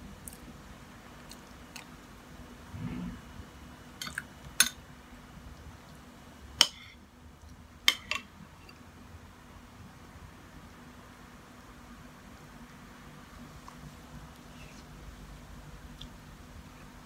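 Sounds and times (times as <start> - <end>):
cutlery clinking on ceramic bowls: 7.9 - 8.8.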